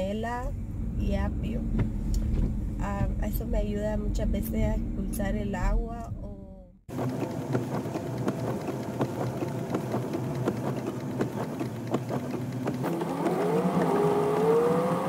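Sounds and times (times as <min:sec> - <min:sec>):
car engine and road noise: 0:00.0 - 0:15.0
raindrops ticking on windshield: 0:06.9 - 0:14.1.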